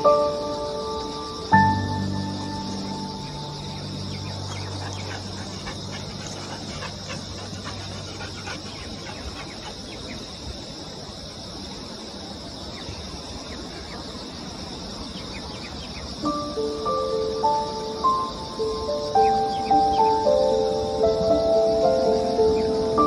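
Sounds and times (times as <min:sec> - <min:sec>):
held music chord: 0:00.0 - 0:06.8, 0:16.3 - 0:23.0
insect chirps and clicks: 0:00.0 - 0:23.0
insects shrilling: 0:00.0 - 0:23.0.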